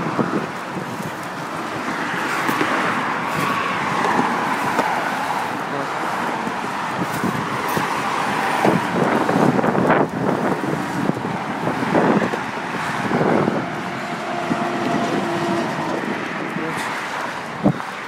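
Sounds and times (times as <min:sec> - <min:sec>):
highway traffic roar: 0:00.0 - 0:18.0
vehicles passing by: 0:00.0 - 0:18.0.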